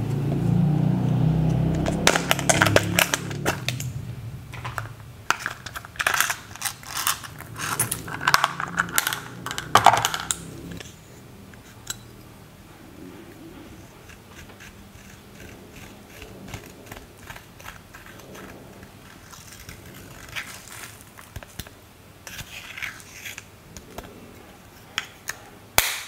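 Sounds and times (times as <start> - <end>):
pen tip scratching eyeshadow: 13.9 - 21.0.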